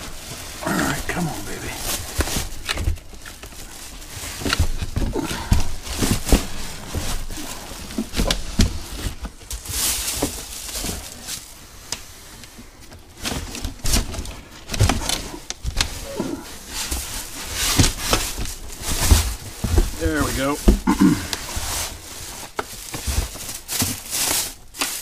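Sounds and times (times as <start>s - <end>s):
plastic wrap crinkling: 0.0s - 25.0s
cardboard scraping: 13.1s - 25.0s.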